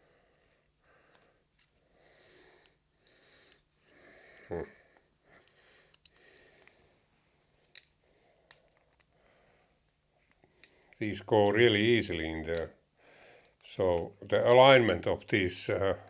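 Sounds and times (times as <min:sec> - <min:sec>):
faint close breathing: 0:00.0 - 0:11.0, 0:12.8 - 0:13.8.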